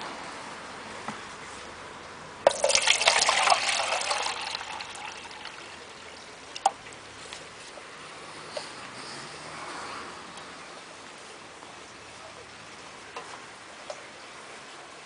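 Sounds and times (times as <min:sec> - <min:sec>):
water pouring into plastic container: 0:02.5 - 0:06.9.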